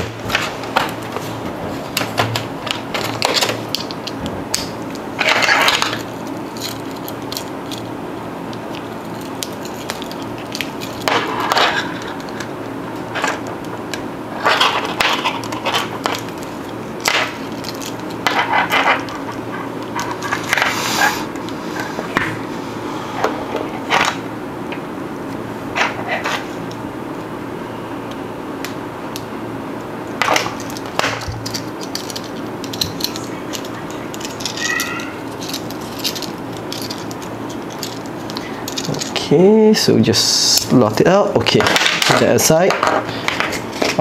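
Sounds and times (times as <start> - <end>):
keys clinking and rattling: 0.4 - 20.7, 30.2 - 39.2.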